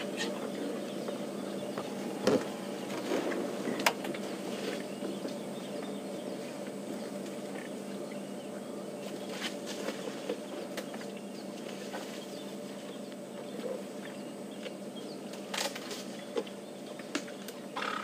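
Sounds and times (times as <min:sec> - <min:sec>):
steady low hum: 0:00.0 - 0:18.0
branches snapping and cracking: 0:15.4 - 0:16.1.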